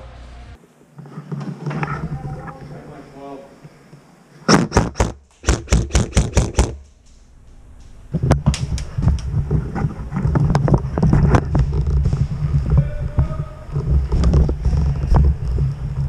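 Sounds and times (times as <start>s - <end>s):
airsoft rifle shots: 4.5s - 7.0s
low rumble of gear handling: 7.5s - 16.0s.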